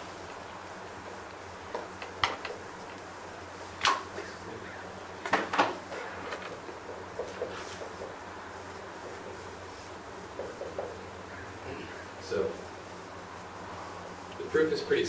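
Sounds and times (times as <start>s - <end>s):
low room hum: 0.0s - 15.0s
marker writing on a whiteboard: 6.8s - 8.2s.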